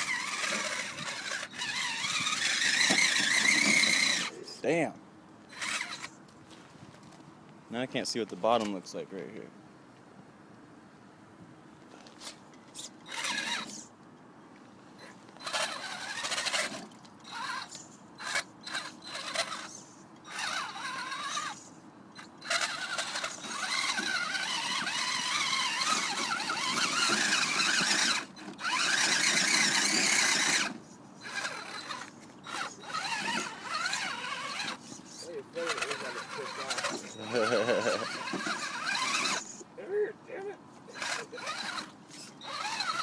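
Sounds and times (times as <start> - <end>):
toy car electric motor whining: 0.0 - 4.4, 5.5 - 6.2, 12.7 - 13.9, 15.0 - 39.7, 40.9 - 43.0.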